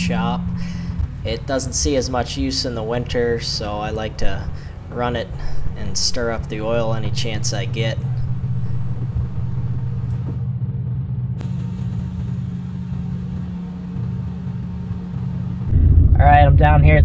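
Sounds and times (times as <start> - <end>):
pickup engine idling: 0.0 - 10.4.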